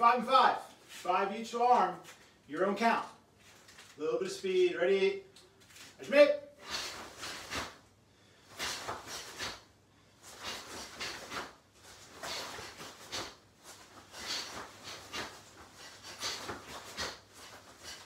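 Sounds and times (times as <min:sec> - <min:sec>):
forceful breaths out: 0:06.6 - 0:18.0.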